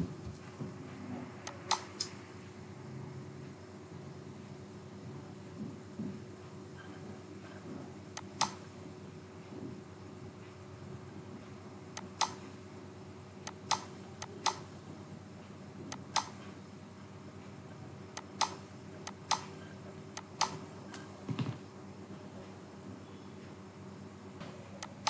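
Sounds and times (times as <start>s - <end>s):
faint steady hum: 0.0s - 25.0s
computer mouse clicking: 12.0s - 12.4s, 13.5s - 14.6s, 18.2s - 19.5s.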